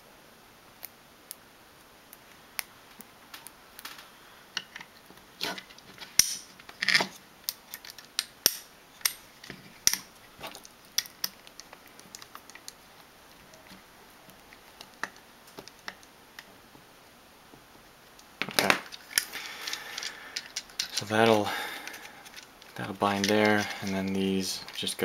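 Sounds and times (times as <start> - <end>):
small plastic parts clicking: 4.6 - 12.8, 18.2 - 25.0.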